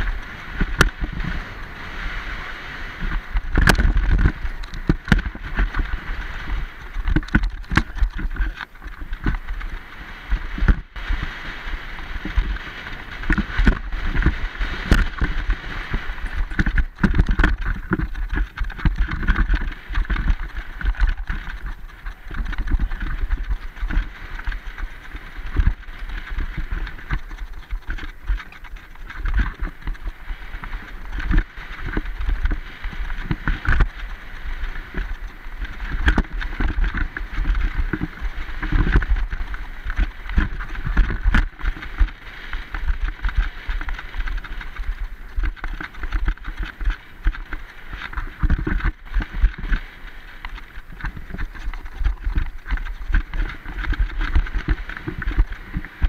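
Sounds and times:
tyres rumbling over dirt: 0:00.0 - 0:56.0
wind buffeting microphone: 0:00.0 - 0:56.0
bike clacking and rattling: 0:03.0 - 0:09.9, 0:12.1 - 0:56.0.

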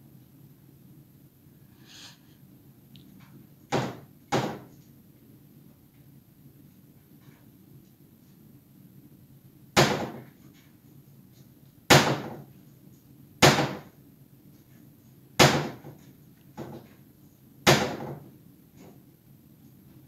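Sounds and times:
cabinet door slamming shut: 0:03.7 - 0:04.7, 0:09.8 - 0:10.3, 0:11.9 - 0:12.4, 0:15.4 - 0:15.9, 0:17.7 - 0:18.2.

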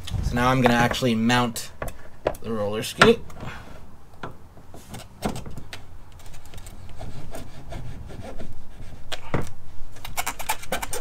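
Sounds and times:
scraping and rubbing on plastic: 0:04.6 - 0:11.0.

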